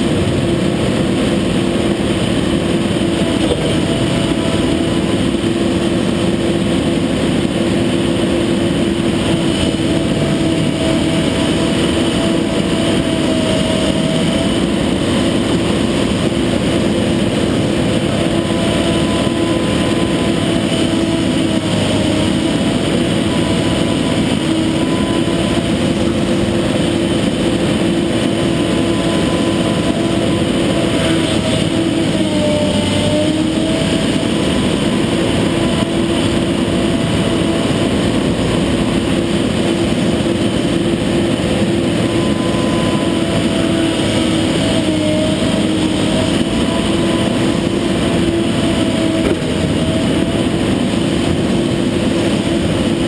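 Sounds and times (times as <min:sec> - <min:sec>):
excavator diesel engine and hydraulics: 0:00.0 - 0:53.0
hydraulic whine: 0:00.0 - 0:53.0.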